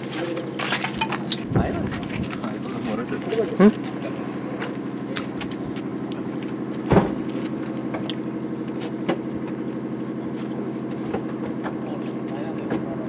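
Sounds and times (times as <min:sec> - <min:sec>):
boat engine running: 0:00.0 - 0:13.0
loud thump: 0:06.9 - 0:07.3.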